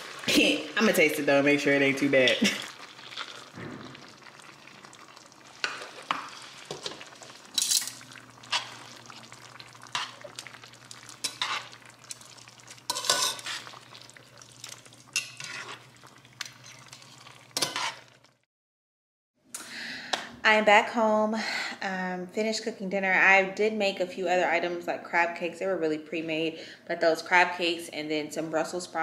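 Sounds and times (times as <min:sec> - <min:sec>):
low sizzle: 0:00.0 - 0:18.5
tongs scraping and clinking pan: 0:05.6 - 0:08.9, 0:11.1 - 0:11.8, 0:12.9 - 0:13.8, 0:15.1 - 0:18.1.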